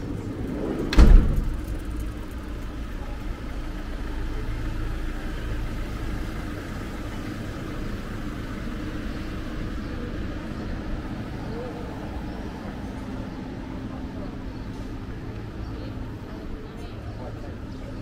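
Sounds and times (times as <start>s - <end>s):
sharp low thump: 0.9s - 1.9s
vehicle engine running: 1.4s - 18.0s.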